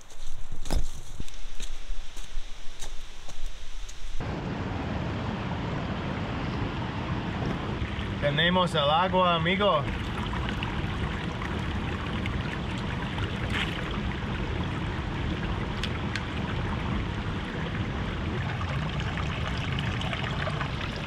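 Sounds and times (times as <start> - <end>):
creek trickling over rocks: 7.8 - 21.0
water bottle filling underwater: 17.4 - 21.0.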